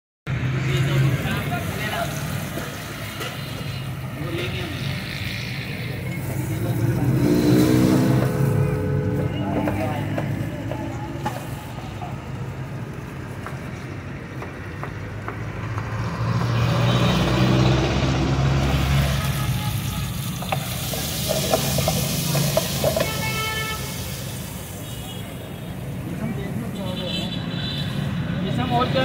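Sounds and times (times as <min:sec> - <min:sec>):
food sizzling in a wok: 0:01.0 - 0:08.7, 0:18.6 - 0:26.2.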